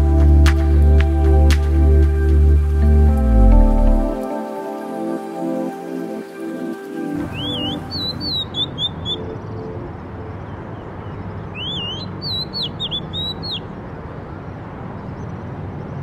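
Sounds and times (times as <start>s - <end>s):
magpie-robin whistling song: 7.3s - 9.5s, 11.0s - 13.7s.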